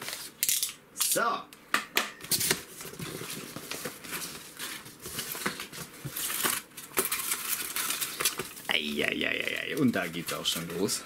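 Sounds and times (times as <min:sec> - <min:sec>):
paper packing filler crinkling: 0:02.3 - 0:11.0.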